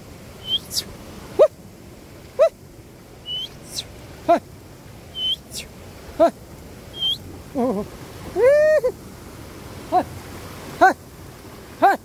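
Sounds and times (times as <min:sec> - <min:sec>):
steady hiss: 0:00.0 - 0:11.8
short high chirps: 0:00.4 - 0:00.9, 0:03.3 - 0:03.9, 0:05.2 - 0:05.7, 0:07.0 - 0:07.2
animal calls gliding upward: 0:07.0 - 0:07.8.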